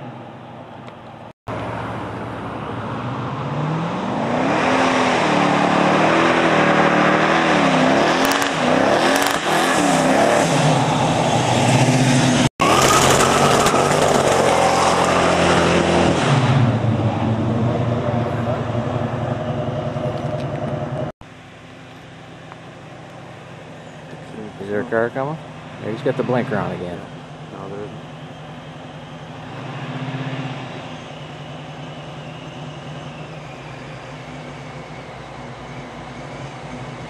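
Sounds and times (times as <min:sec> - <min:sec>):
car engine revving: 0:01.5 - 0:21.2.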